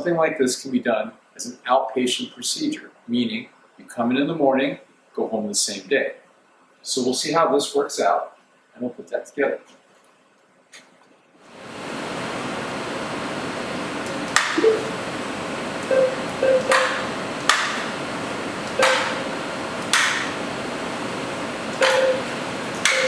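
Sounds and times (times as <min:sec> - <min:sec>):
steady hiss: 0:00.0 - 0:09.8, 0:11.4 - 0:23.0
sharp knocks: 0:14.4 - 0:14.8, 0:16.5 - 0:17.9, 0:18.8 - 0:19.2, 0:19.9 - 0:20.4, 0:21.8 - 0:23.0
short ringing tone: 0:15.9 - 0:16.7, 0:21.8 - 0:22.3.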